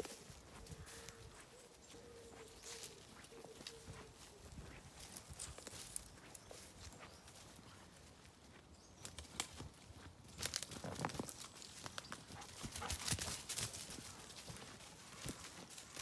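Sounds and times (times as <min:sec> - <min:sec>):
footsteps on twigs and leaves: 0:00.0 - 0:16.0.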